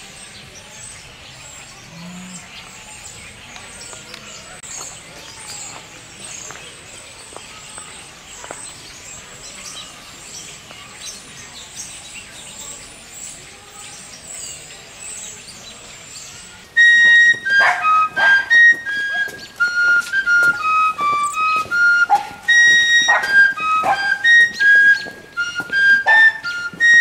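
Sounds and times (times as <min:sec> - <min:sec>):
flute-like woodwind playing tune: 0:16.7 - 0:27.0.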